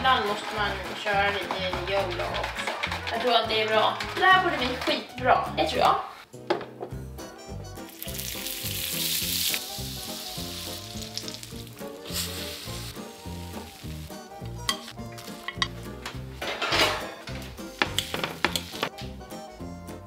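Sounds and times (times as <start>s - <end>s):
waffle batter sizzling: 7.8s - 15.5s, 17.7s - 19.0s.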